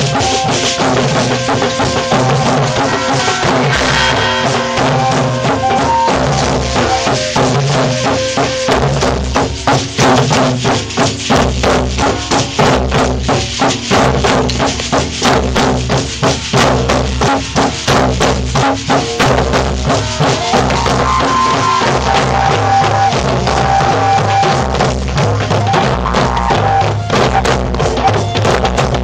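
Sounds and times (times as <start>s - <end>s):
hand drums playing: 0.0s - 29.0s
held pitched notes: 0.2s - 9.5s, 19.9s - 28.5s.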